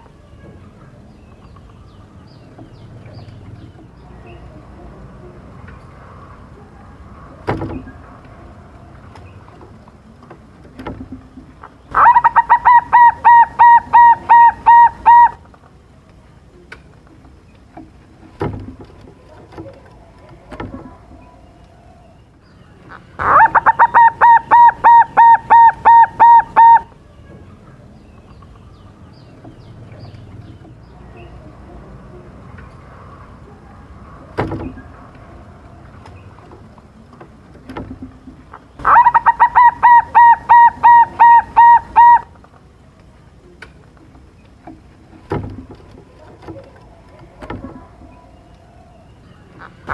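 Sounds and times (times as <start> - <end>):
dove cooing: 11.9 - 15.5, 22.9 - 27.0, 38.7 - 42.4.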